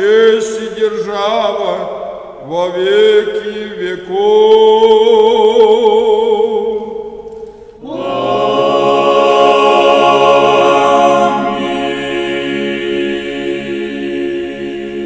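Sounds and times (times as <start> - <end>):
choir holding a chord: 7.8 - 15.0.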